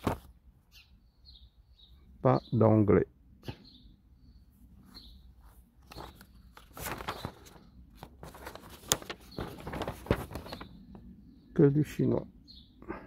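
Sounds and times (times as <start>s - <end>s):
paper rustling and crackling: 0.0s - 0.3s, 5.4s - 11.1s.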